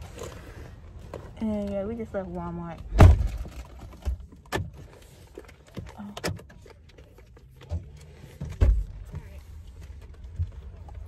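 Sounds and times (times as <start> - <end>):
low steady rumble: 0.0 - 11.0
clicks and knocks in car cabin: 7.6 - 9.4.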